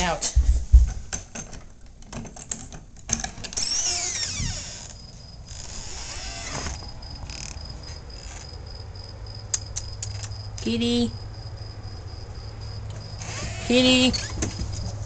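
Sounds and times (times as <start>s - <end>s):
door squeaking: 3.2s - 8.6s, 13.2s - 14.8s
crickets chirring: 3.5s - 15.0s.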